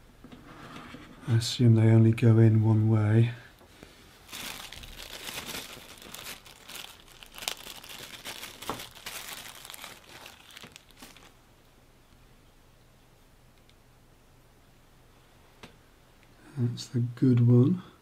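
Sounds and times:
plastic bag crinkling: 4.2s - 11.4s.

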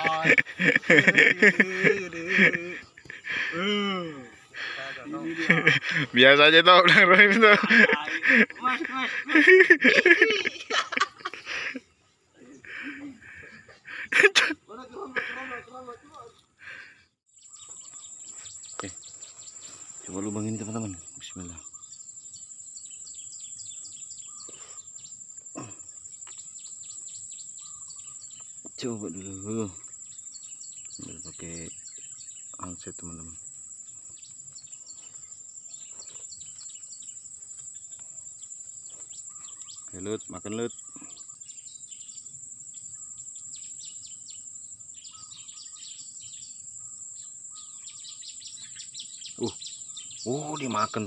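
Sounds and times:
high-pitched insect drone: 0.0s - 11.8s
bird chirps: 0.0s - 51.0s.

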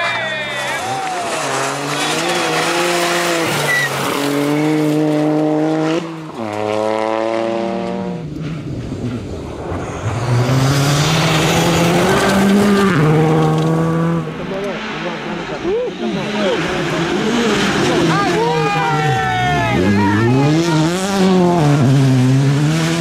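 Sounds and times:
rally car engines revving: 0.0s - 23.0s
tyres scrabbling on gravel: 0.4s - 5.0s.

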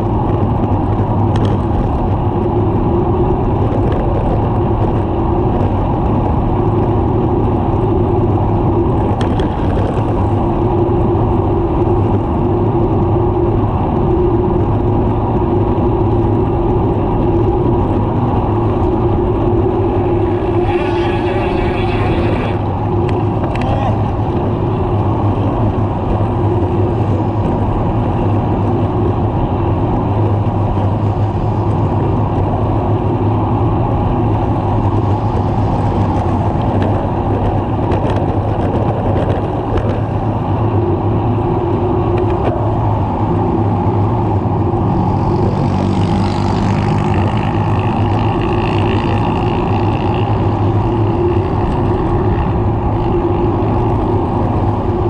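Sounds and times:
motor traffic passing: 0.0s - 55.0s
wind buffeting microphone: 0.0s - 55.0s
passing vehicle hiss and whine: 14.8s - 37.9s, 39.5s - 55.0s.

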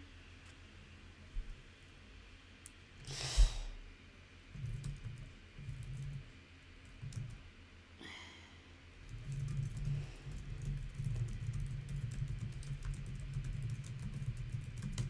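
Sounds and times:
short breath: 3.1s - 3.8s, 8.0s - 8.7s
computer keyboard typing: 4.6s - 7.4s, 9.0s - 15.0s
person sighing: 8.0s - 8.6s.

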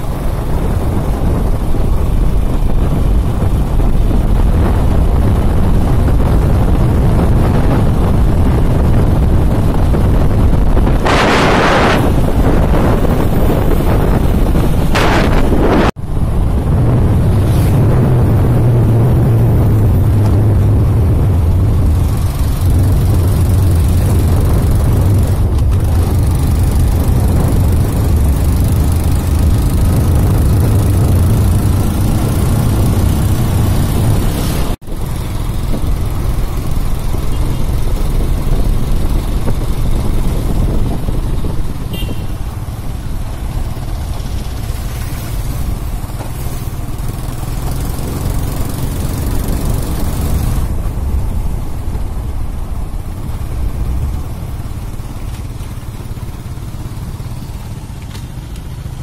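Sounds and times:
motor scooter engine drone: 0.0s - 59.0s
rushing wind: 0.0s - 59.0s
tyre noise on wet asphalt: 0.0s - 59.0s.

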